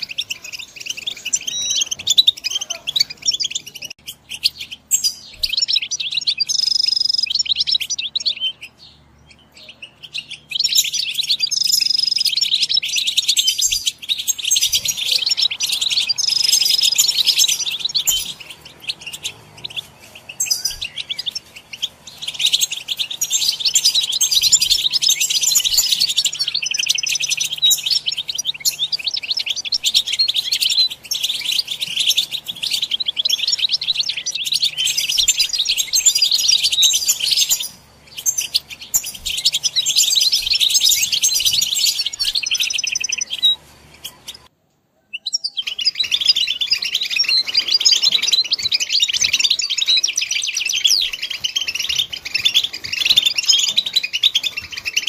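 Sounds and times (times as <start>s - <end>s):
bird whistled notes: 0.0s - 8.8s, 9.6s - 44.5s
songbird twittering: 0.0s - 55.0s.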